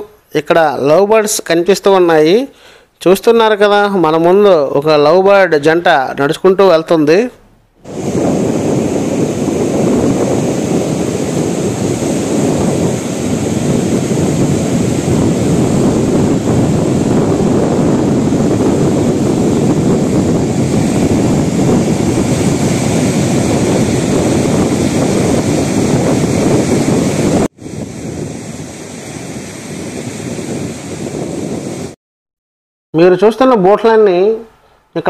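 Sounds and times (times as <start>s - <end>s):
waves breaking on a beach: 7.8s - 32.0s
wind buffeting the microphone: 7.8s - 32.0s.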